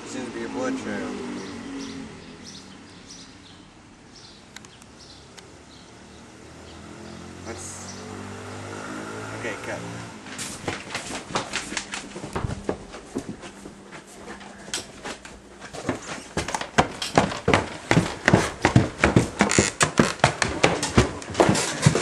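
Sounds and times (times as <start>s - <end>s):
footsteps indoors: 10.2s - 22.0s.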